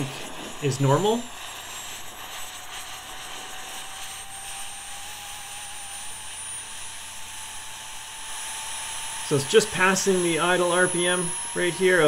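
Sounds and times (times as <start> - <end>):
jet turbine rush with whine: 0.0 - 12.0.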